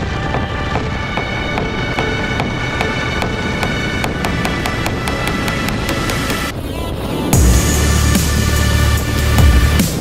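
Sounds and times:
heavy deep bass: 7.4 - 10.0.

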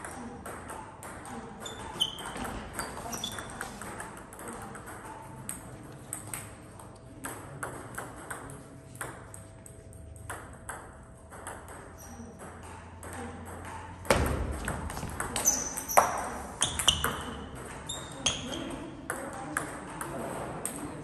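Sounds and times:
sneakers squeaking on floor: 1.5 - 4.2, 11.9 - 12.4, 14.1 - 18.9.

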